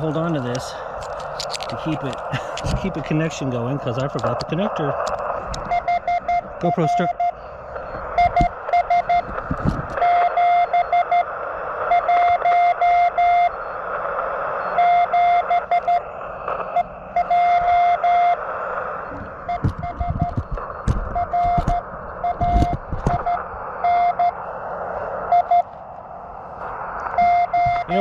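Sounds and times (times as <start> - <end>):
radio band hiss: 0.0 - 28.0
morse code tone: 5.7 - 9.4, 10.0 - 11.3, 11.9 - 13.6, 14.6 - 16.0, 16.7 - 18.4, 19.0 - 24.4, 25.3 - 25.7, 27.2 - 28.0.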